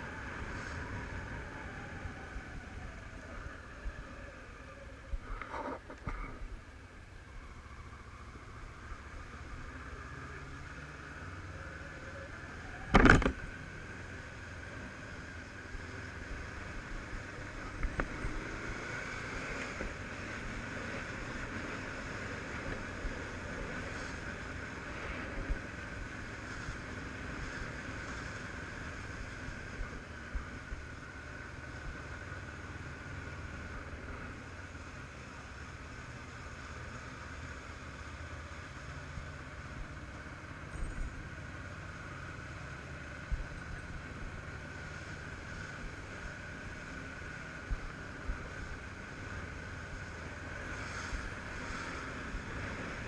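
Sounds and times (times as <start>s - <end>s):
road and wind noise: 0.0s - 53.0s.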